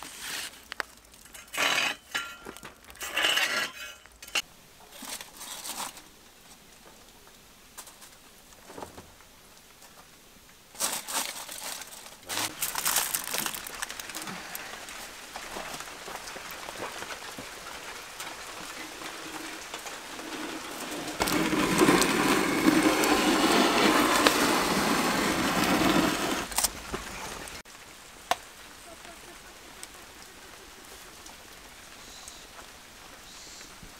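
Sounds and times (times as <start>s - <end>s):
aluminium foil crinkling: 0.0s - 3.0s, 4.9s - 6.5s, 10.7s - 23.2s
wood fire crackling: 0.0s - 4.2s, 4.8s - 33.9s.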